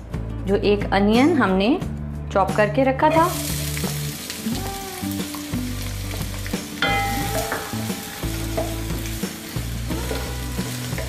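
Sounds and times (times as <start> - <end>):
onion sizzling in oil: 3.3 - 11.0.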